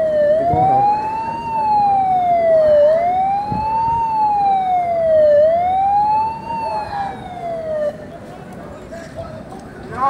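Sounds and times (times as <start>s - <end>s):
siren wailing: 0.0s - 8.0s.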